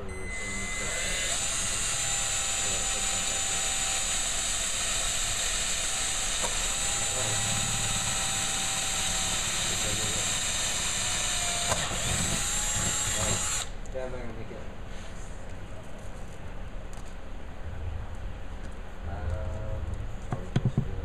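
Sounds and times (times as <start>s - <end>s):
power drill whining: 0.0s - 13.7s.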